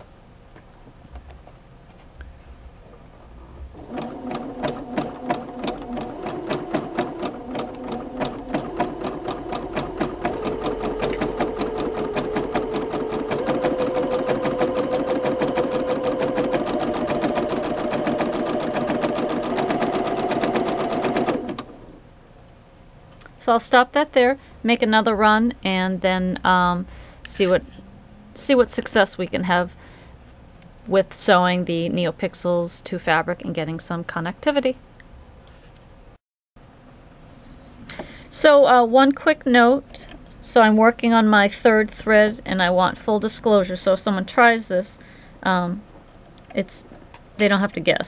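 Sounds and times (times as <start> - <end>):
sewing machine stitching: 3.7 - 22.0.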